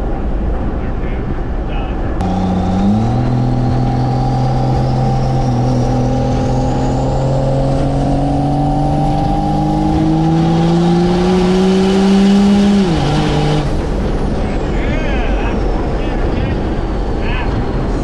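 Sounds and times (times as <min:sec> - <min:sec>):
diesel engine revving under load: 0:02.2 - 0:14.4.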